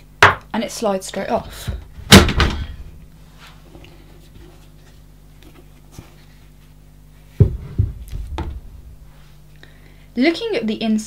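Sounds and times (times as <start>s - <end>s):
faint steady hum: 0.0s - 11.0s
dull thumps of panel handled: 7.4s - 8.6s.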